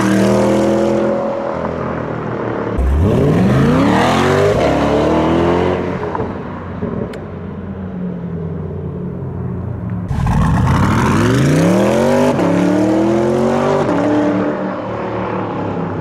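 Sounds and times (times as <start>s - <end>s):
car engine accelerating hard: 2.8s - 7.1s, 10.1s - 15.8s.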